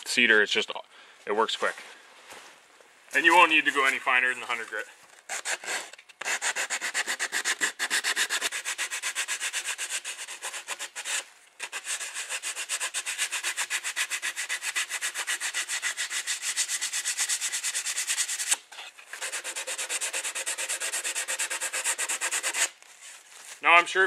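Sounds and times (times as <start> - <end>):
sandpaper rubbing on wood: 5.3 - 18.6, 19.2 - 22.8.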